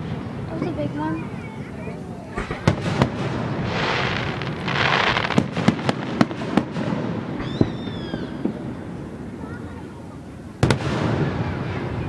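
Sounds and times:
fireworks bangs: 0.0s - 12.0s
fireworks hissing crackle: 0.0s - 12.0s
falling whistle: 7.4s - 8.4s.

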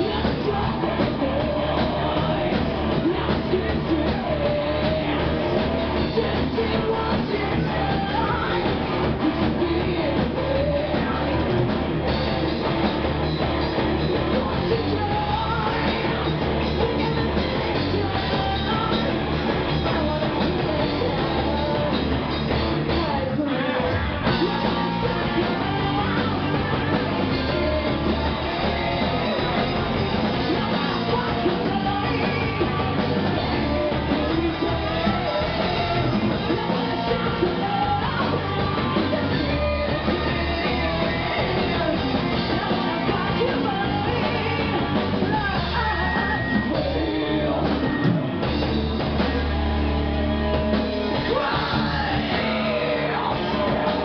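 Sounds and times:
woman singing into microphone: 0.0s - 11.4s, 14.4s - 19.1s, 30.4s - 47.6s
bass guitar: 0.0s - 54.0s
drums: 0.0s - 54.0s
electric guitars: 0.0s - 54.0s.

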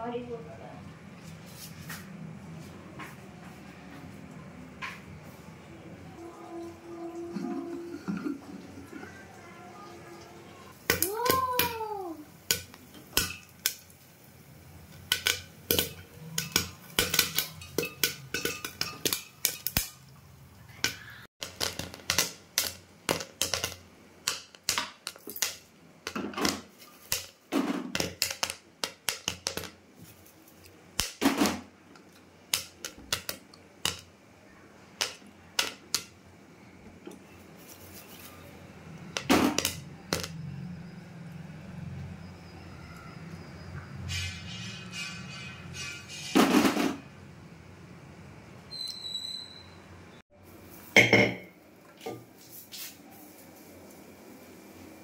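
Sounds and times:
popcorn popping: 10.7s - 20.1s, 20.8s - 36.3s, 36.9s - 40.4s
short squeak: 48.7s - 49.9s.

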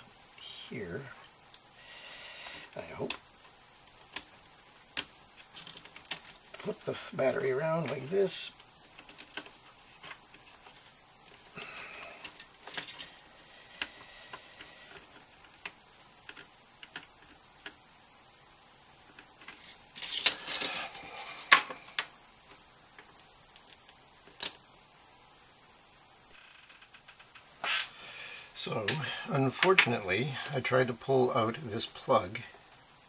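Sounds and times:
small tools clicking and scraping: 5.0s - 6.7s, 7.8s - 17.8s, 19.0s - 24.6s.

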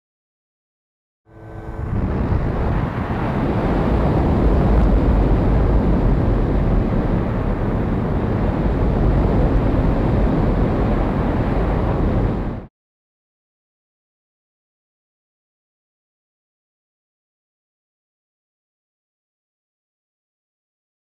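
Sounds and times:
wind buffeting microphone: 1.7s - 12.7s.

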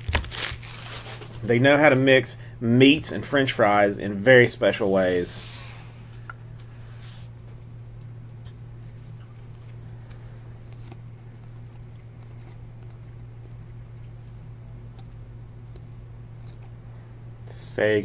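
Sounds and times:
steady low hum: 0.0s - 18.0s
cards ticking and sliding: 6.9s - 16.8s.

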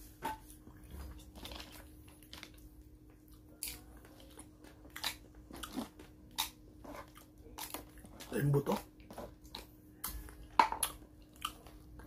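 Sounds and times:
close-up chewing food: 0.4s - 12.0s.

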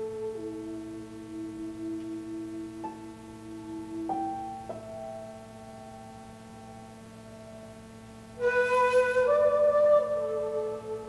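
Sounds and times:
breathy bamboo flute: 0.0s - 2.9s, 8.4s - 11.0s
soft piano notes: 0.0s - 11.0s.

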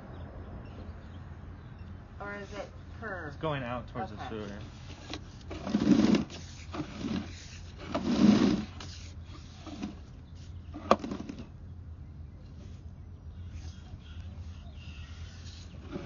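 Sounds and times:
cable scraping and rubbing: 4.6s - 11.5s, 14.8s - 16.0s.

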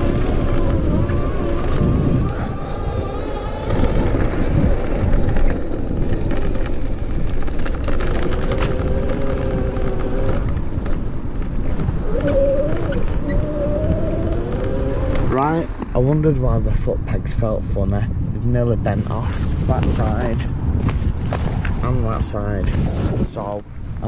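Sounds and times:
electric hub motor whining: 0.0s - 16.0s
tyres rumbling on dirt: 0.0s - 24.0s
wind on microphone: 0.0s - 24.0s.

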